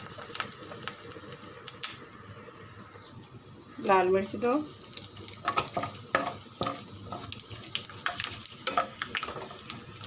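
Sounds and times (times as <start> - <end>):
sharp crackles and pops: 0.0 - 3.1, 4.8 - 10.0
spices sizzling in hot oil: 0.0 - 10.0
ladle stirring in pan: 4.8 - 10.0.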